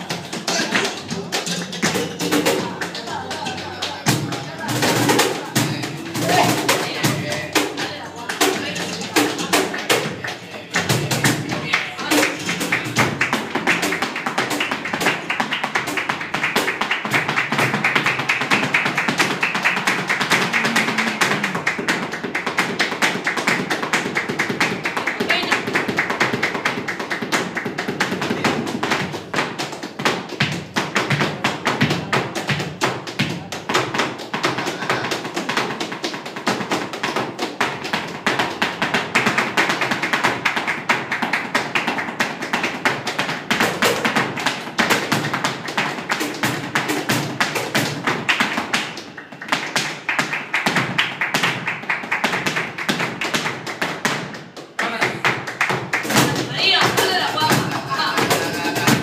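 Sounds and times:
flamenco guitar: 0:00.0 - 0:59.0
footwork on wooden stage: 0:00.0 - 0:59.0
rhythmic handclaps: 0:00.0 - 0:59.0.

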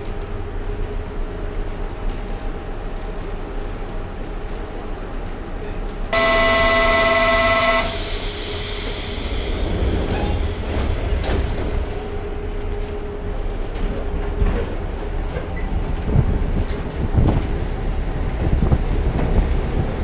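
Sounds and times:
subway car running rumble: 0:00.0 - 0:20.0
multi-tone warning signal: 0:06.2 - 0:08.2
loud hiss of air: 0:07.8 - 0:11.0.

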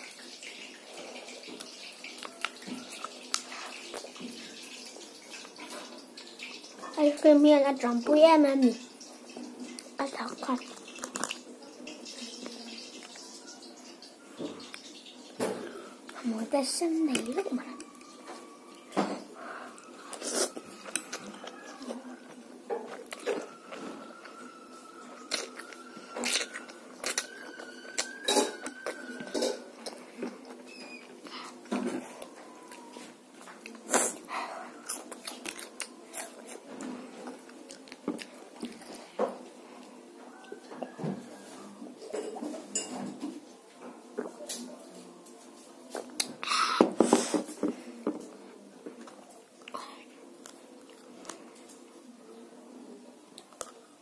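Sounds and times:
child slurping and chewing noodles: 0:00.0 - 0:05.9, 0:09.8 - 0:11.5, 0:15.6 - 0:40.6, 0:46.1 - 0:48.0.

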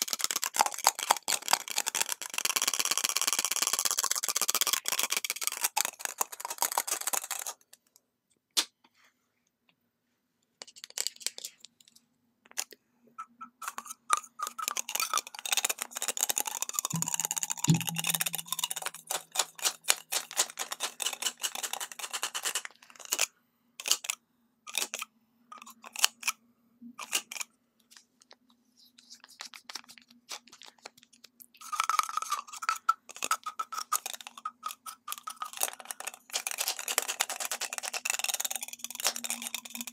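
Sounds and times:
fingernails tapping on plastic tubes: 0:15.6 - 0:20.6.

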